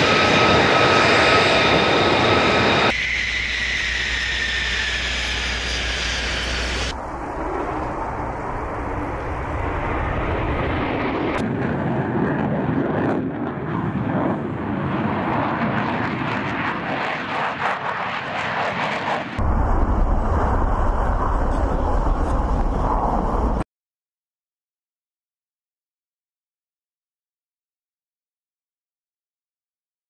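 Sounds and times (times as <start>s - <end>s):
jet engine roar: 0.0s - 23.6s.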